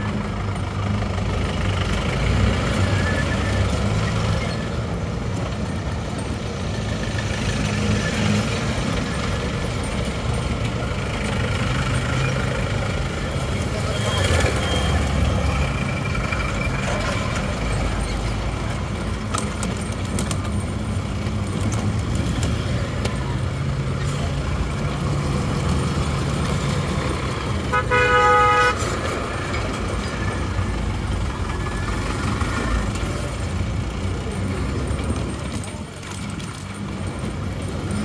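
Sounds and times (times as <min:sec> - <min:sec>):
road traffic rumble: 0:00.0 - 0:38.0
vehicle horn: 0:27.6 - 0:28.9.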